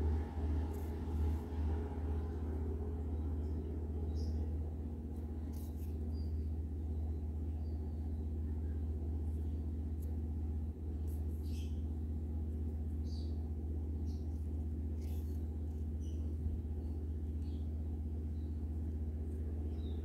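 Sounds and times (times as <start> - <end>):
steady low hum: 0.0 - 20.0
faint rustles and ticks: 14.2 - 17.6.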